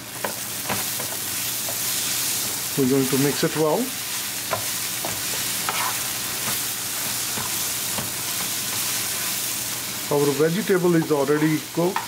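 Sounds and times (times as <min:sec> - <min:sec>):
vegetables sizzling in oil: 0:00.0 - 0:12.0
spatula scraping pan: 0:04.4 - 0:09.5.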